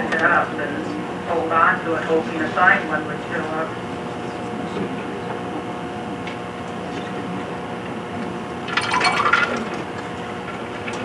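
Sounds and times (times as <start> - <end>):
steady room hum and hiss: 0.0 - 11.0
slide projector clattering: 8.6 - 11.0.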